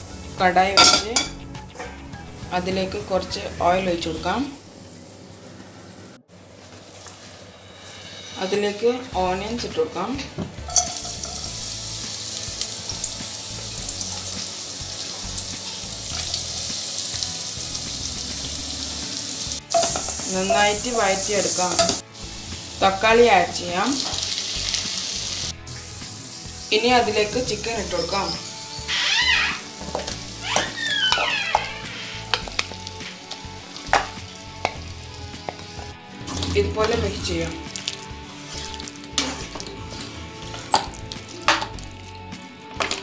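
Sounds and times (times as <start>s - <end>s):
onions sizzling in hot oil: 0.0s - 1.5s, 10.6s - 36.0s, 37.4s - 43.0s
spoon scraping and knocking pan: 0.8s - 1.4s, 10.4s - 11.6s, 19.6s - 20.9s, 21.6s - 22.0s, 33.8s - 37.4s, 38.6s - 41.8s.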